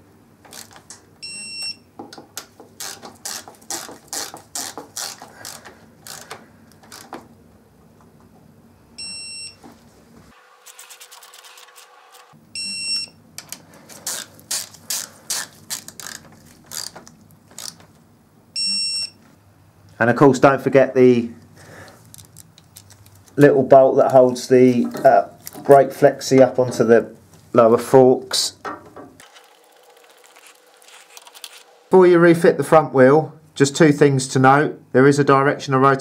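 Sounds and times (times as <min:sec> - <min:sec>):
short electronic beep: 0:18.6 - 0:19.2.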